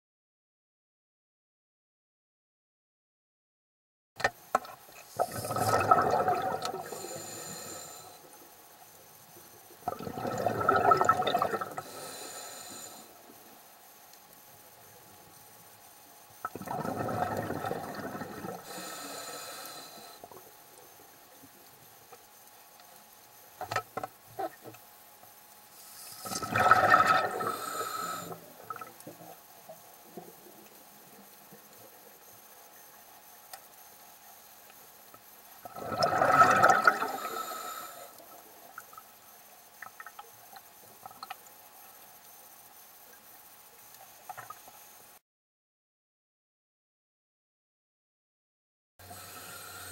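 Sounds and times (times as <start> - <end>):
underwater air bubbles: 5.1 - 8.5, 9.2 - 13.4, 16.4 - 21.8, 25.8 - 32.2, 35.2 - 41.4
faint clicks: 19.6 - 26.2, 28.7 - 35.6, 38.1 - 44.8.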